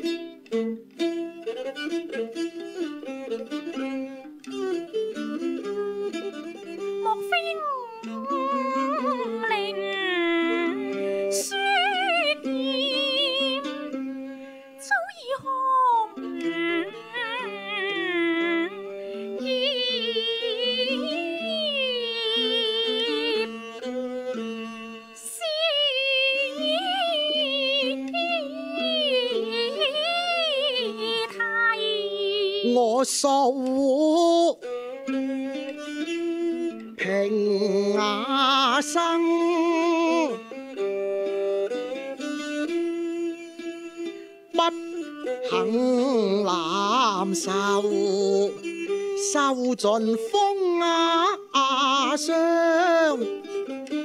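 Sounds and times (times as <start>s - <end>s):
bowed two-string fiddle: 0.0s - 54.0s
woman singing opera aria: 7.0s - 14.0s, 14.7s - 23.7s, 25.1s - 34.5s, 37.6s - 40.5s, 42.8s - 53.4s.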